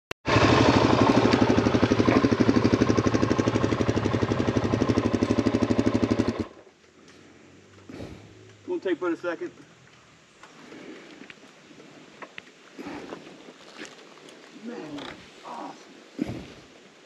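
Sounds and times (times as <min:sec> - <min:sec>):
dirt bike engine idling: 0:00.3 - 0:08.8.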